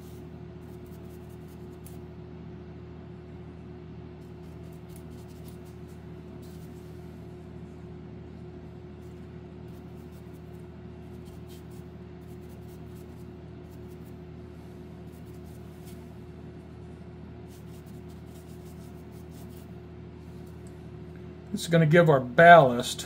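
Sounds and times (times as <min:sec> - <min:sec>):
low room hum: 0:00.0 - 0:23.0
paintbrush tapping and scratching: 0:04.2 - 0:06.8, 0:17.5 - 0:19.7.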